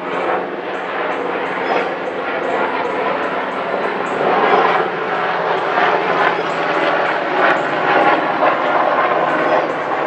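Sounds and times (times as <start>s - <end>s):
helicopter engine and rotor noise: 0.0s - 10.0s.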